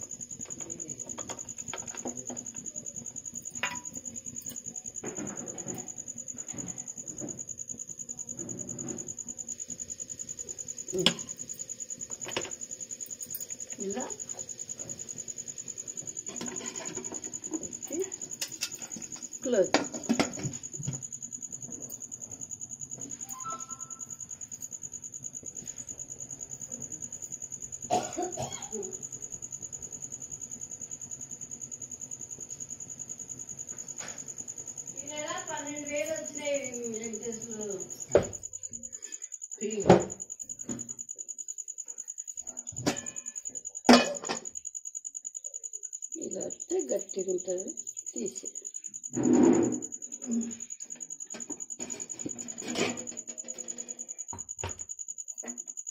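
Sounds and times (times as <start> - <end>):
thin high-pitched whine: 0.0 - 7.3, 23.0 - 24.8
person coughing: 27.9 - 28.9.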